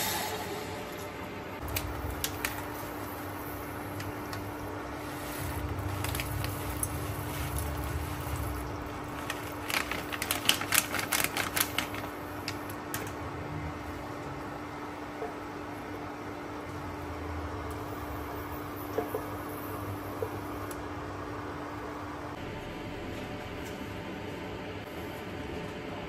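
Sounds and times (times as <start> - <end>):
steady low hum: 0.0 - 26.0
plastic packet crinkling: 5.6 - 13.0.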